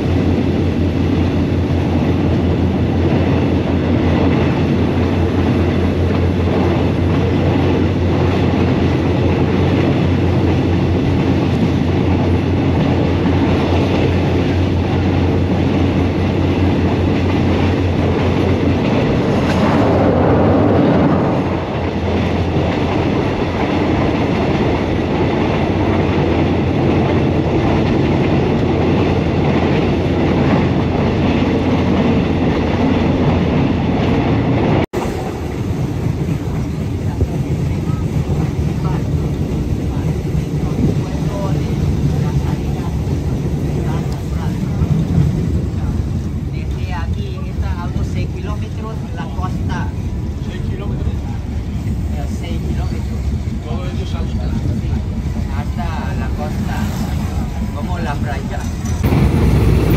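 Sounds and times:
train running along track: 0:00.0 - 0:59.9.

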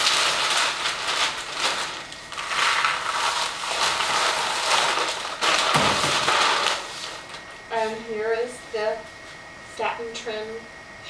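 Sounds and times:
paper crumpling: 0:00.0 - 0:08.0
paper rustling and crinkling: 0:00.0 - 0:08.0.

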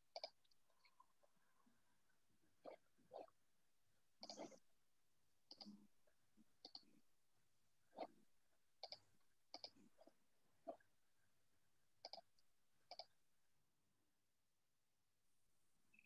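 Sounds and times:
computer mouse clicking: 0:00.1 - 0:00.5, 0:04.2 - 0:04.6, 0:05.5 - 0:05.8, 0:06.6 - 0:06.9, 0:08.8 - 0:09.8, 0:12.0 - 0:13.1.

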